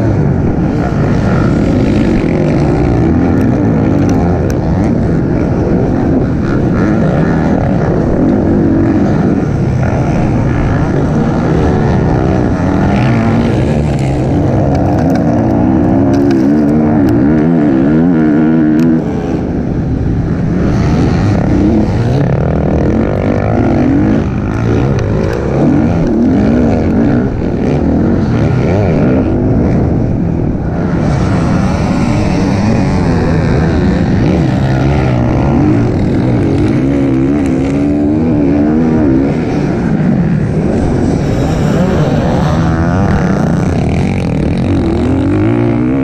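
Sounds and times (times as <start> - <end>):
dirt bike engine revving: 0.0 - 46.0.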